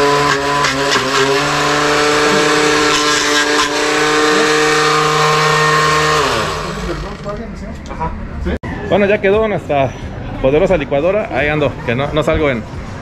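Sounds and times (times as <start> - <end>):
blender motor whining: 0.0 - 7.2.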